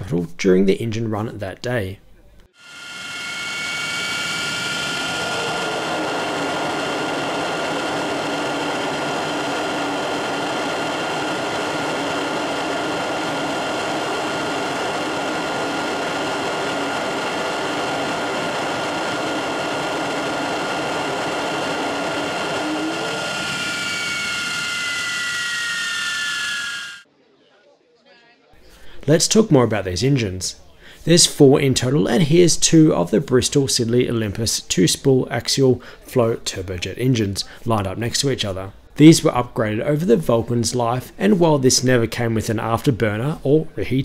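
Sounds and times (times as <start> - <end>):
jet engine roaring and whistling: 2.6 - 27.1.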